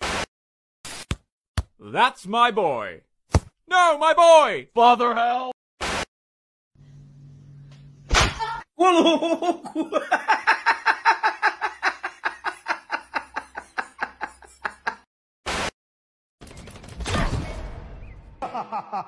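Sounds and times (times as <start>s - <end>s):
high-pitched cartoon laugh: 8.8s - 15.0s, 18.4s - 19.0s.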